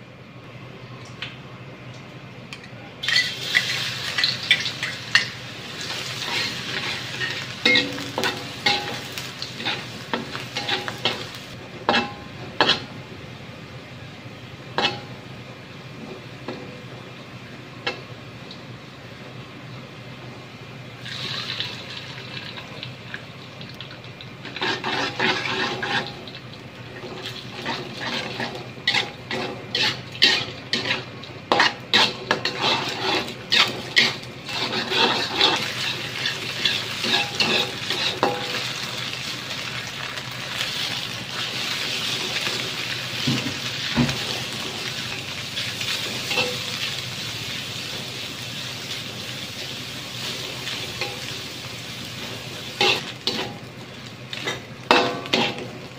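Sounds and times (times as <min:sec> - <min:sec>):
spatula scraping and clanking on wok: 0:03.0 - 0:12.9, 0:14.8 - 0:15.1, 0:24.4 - 0:26.3, 0:26.9 - 0:38.8, 0:45.6 - 0:47.0, 0:50.2 - 0:51.5, 0:52.2 - 0:53.7, 0:54.3 - 0:55.9
food sizzling in hot oil: 0:03.0 - 0:13.0, 0:21.0 - 0:55.9.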